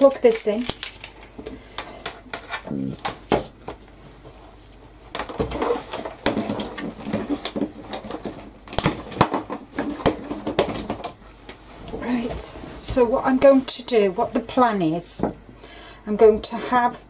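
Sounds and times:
craft materials rustling and clattering: 0:05.1 - 0:11.2.

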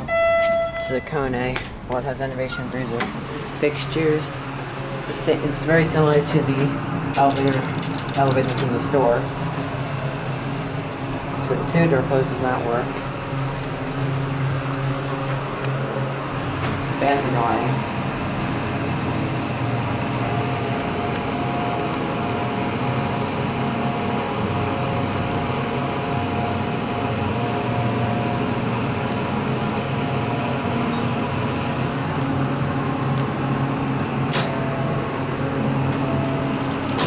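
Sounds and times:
ventilation fan whoosh: 0:00.0 - 0:37.0
sharp click: 0:34.0 - 0:34.6.

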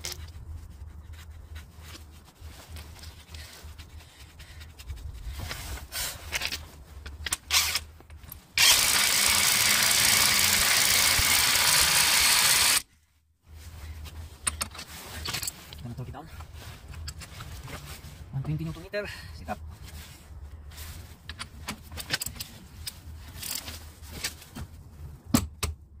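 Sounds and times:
impact wrench running: 0:08.6 - 0:12.8.

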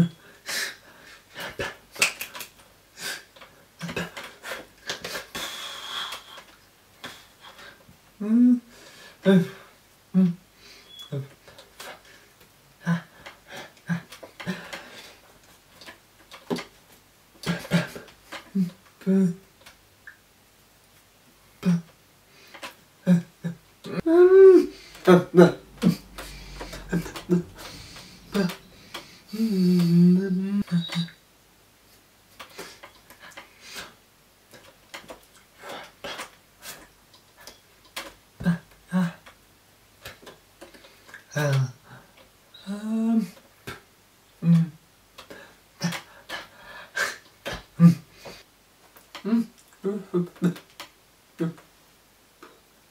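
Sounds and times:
mouth sounds and breaths: 0:21.6 - 0:31.2, 0:40.0 - 0:51.7.

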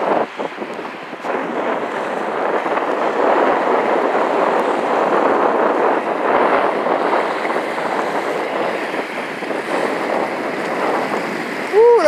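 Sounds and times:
waves breaking against pier: 0:00.0 - 0:12.0.

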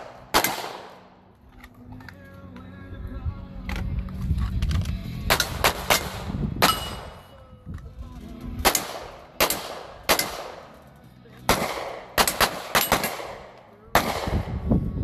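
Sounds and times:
handgun shots: 0:00.0 - 0:01.1, 0:05.3 - 0:07.3, 0:08.6 - 0:10.8, 0:11.5 - 0:14.6.

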